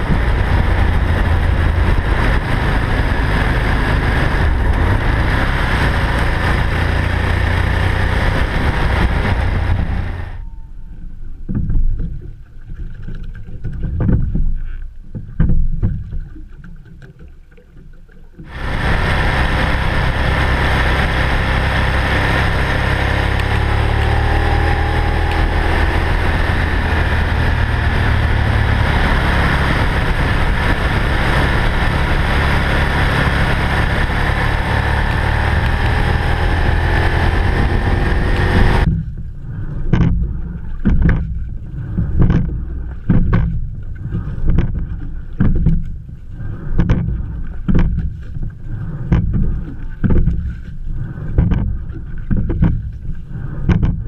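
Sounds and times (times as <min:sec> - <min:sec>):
wind rush on microphone: 0:00.0 - 0:10.6, 0:18.4 - 0:54.0
motorcycle engine drone: 0:00.0 - 0:11.3, 0:18.5 - 0:41.2
dull thumps: 0:11.4 - 0:12.4, 0:13.2 - 0:16.4, 0:39.9 - 0:46.0, 0:46.7 - 0:50.6, 0:51.2 - 0:54.0.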